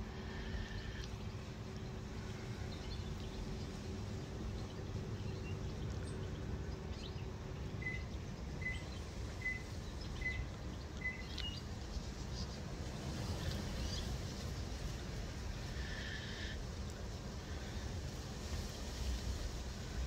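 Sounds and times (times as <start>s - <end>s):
low background rumble: 0.0s - 20.0s
faint bird chirps: 4.6s - 12.6s
small bird calling: 5.2s - 12.6s.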